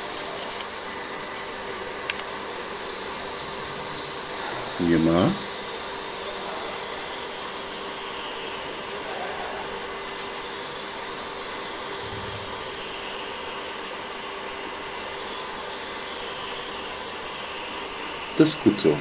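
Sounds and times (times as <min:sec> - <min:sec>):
faint hum: 0:11.9 - 0:13.2
soft low thump: 0:12.0 - 0:12.6.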